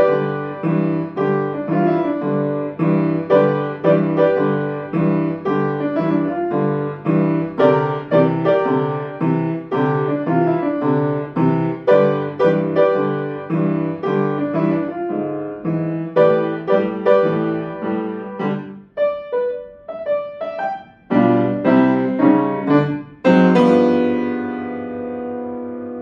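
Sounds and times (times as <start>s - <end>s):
blues piano piece: 0.0s - 26.0s.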